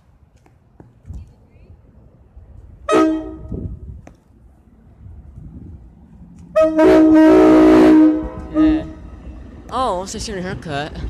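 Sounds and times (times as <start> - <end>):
train air horn: 2.9 - 3.7, 6.5 - 9.1.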